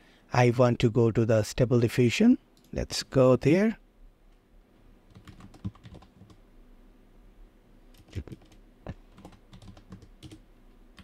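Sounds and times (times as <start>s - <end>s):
computer keyboard keystrokes: 5.1s - 6.4s, 7.9s - 10.4s.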